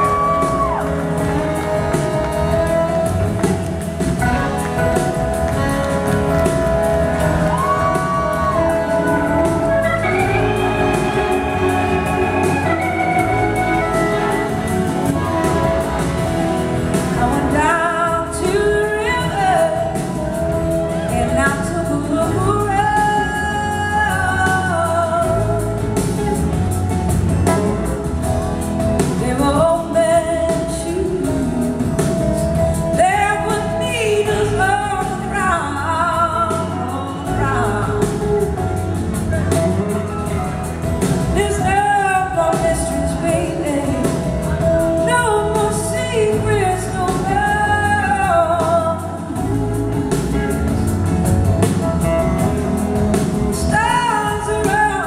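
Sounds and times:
drums: 0.0 - 55.0
electric guitars: 0.0 - 55.0
woman singing: 6.2 - 26.2, 28.9 - 38.6, 41.0 - 50.9, 51.6 - 55.0.

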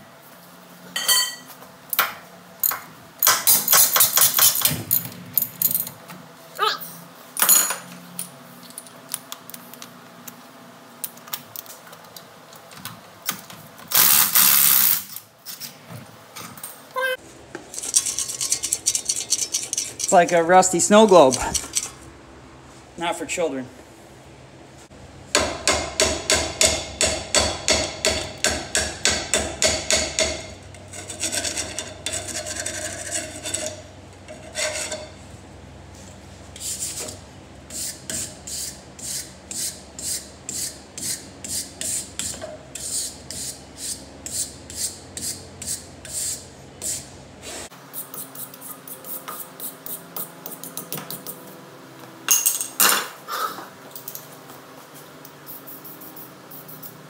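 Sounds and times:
wire brush scrubbing metal: 17.7 - 21.8
spray paint can hissing: 55.4 - 57.0.

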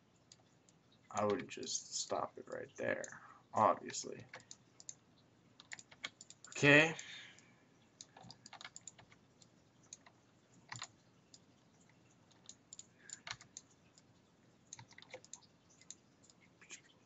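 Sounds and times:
keyboard and mouse clicking: 0.3 - 1.6, 3.8 - 5.0, 5.6 - 7.2, 8.0 - 14.1, 14.7 - 16.9.

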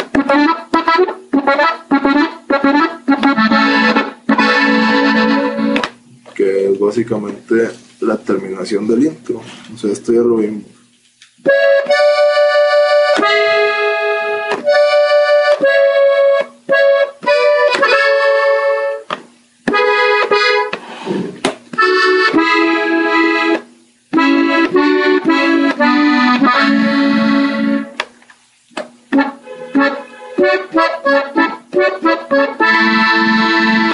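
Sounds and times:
button accordion played slowly: 0.0 - 5.9, 11.5 - 19.1, 19.7 - 20.8, 21.8 - 23.6, 24.2 - 28.0, 29.1 - 33.9.

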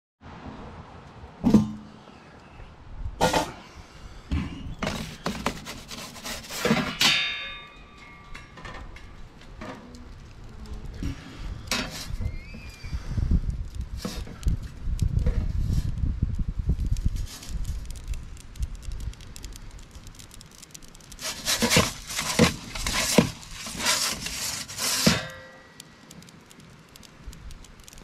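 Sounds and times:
metal peel scraping: 4.4 - 10.2, 21.1 - 25.8.

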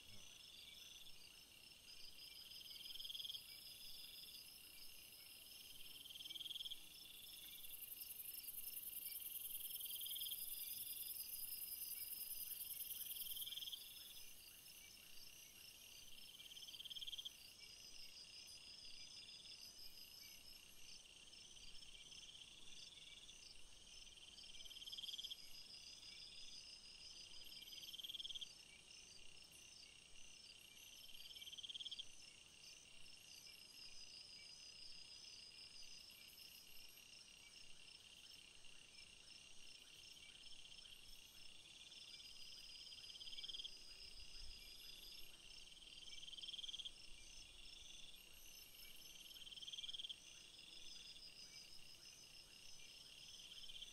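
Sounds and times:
buzzy insect call: 0.0 - 23.4
high insect hiss: 0.0 - 53.9.

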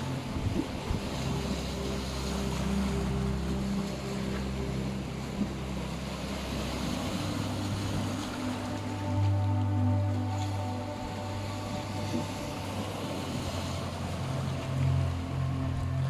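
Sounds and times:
ambient meditation music: 0.0 - 16.0
waves breaking on rocks: 0.0 - 16.0.

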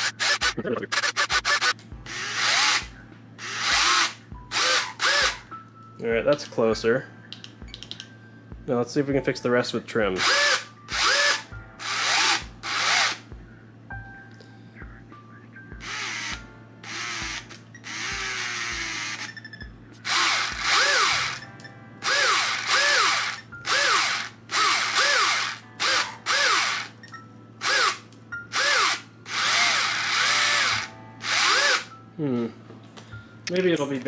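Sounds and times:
electric drive motors whirring: 0.0 - 5.5, 10.2 - 13.2, 15.8 - 31.9.

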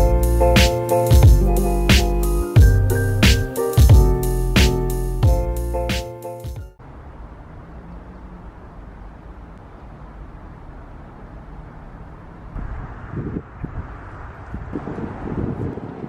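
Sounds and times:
keyboard music: 0.0 - 6.8
distant traffic rumble: 6.8 - 16.0
wind buffeting microphone: 12.2 - 16.0.

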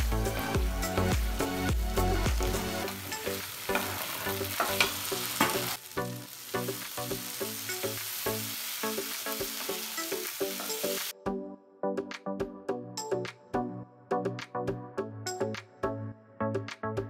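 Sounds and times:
chicken sizzling in frying pan: 2.3 - 11.1
spatula scraping pan: 3.7 - 5.8.

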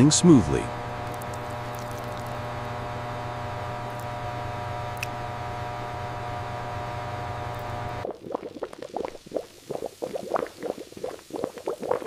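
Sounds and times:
machine hum with held tones: 0.0 - 8.0
thick sludge bubbling: 8.0 - 12.0.

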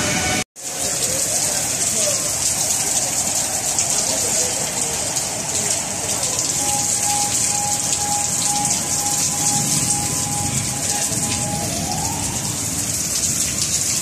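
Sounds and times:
heavy rain on pavement: 0.0 - 14.0
high pulsing beeps: 5.6 - 12.6.

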